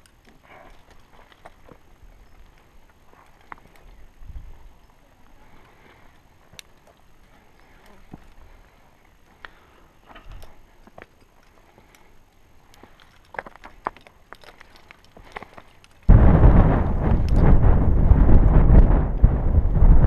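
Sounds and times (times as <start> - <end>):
scrapes and clicks on rock: 0.0 - 16.1
wind buffeting microphone: 16.1 - 20.0.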